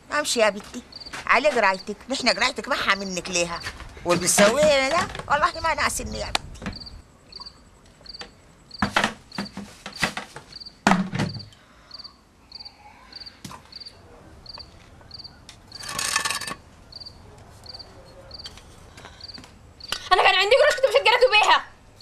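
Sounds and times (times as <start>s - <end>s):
crickets chirping: 0.0s - 22.0s
clatter of household things: 3.7s - 5.3s, 15.8s - 16.6s
sharp knocks: 8.2s - 11.5s
rattling scrape: 15.7s - 16.6s.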